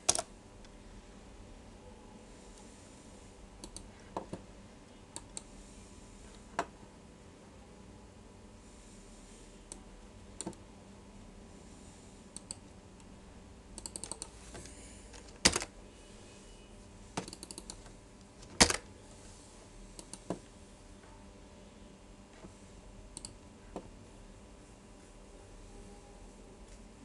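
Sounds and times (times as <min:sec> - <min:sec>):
computer keyboard typing: 0:00.0 - 0:00.3, 0:03.6 - 0:03.9, 0:12.4 - 0:12.6, 0:13.8 - 0:14.4, 0:17.2 - 0:17.9, 0:20.0 - 0:20.4, 0:23.2 - 0:23.4.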